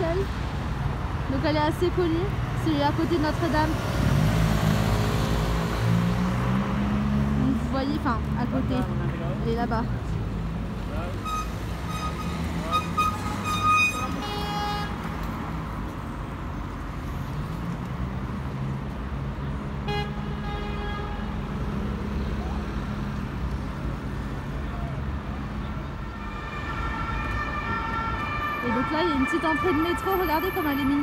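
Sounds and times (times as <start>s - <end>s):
car horn: 11.2s - 15.0s, 19.8s - 21.4s, 26.0s - 30.9s
siren: 26.1s - 31.0s.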